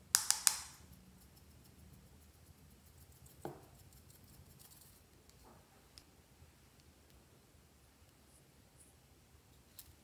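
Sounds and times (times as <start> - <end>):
plastic shaker clicks: 0.1 - 0.8.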